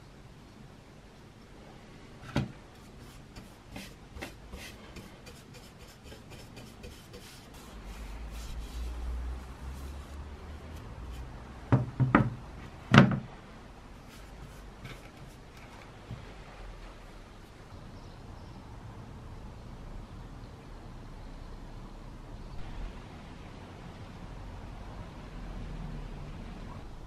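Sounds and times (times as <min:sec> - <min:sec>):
paintbrush bristle strokes: 0:02.7 - 0:11.5, 0:14.0 - 0:15.8
hatchet knocking on wooden workbench: 0:11.7 - 0:12.4.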